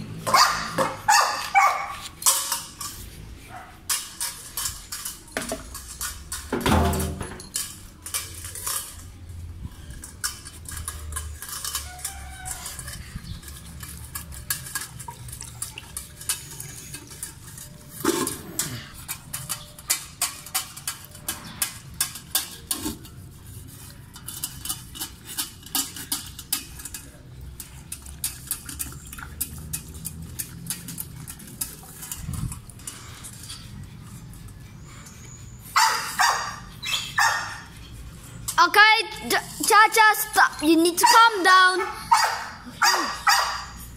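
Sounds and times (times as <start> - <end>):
dog lapping water from metal bowl: 7.8 - 41.4.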